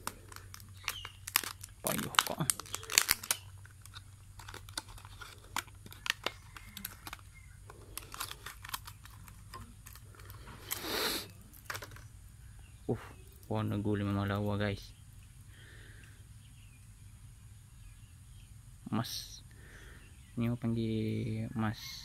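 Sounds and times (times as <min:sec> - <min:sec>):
packaging rustle: 0:00.0 - 0:12.1
plastic packaging crinkling: 0:00.0 - 0:12.1.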